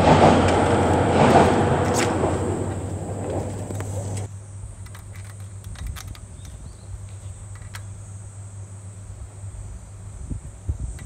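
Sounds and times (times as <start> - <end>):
steady low hum: 0.0 - 4.9
insects buzzing: 0.0 - 11.0.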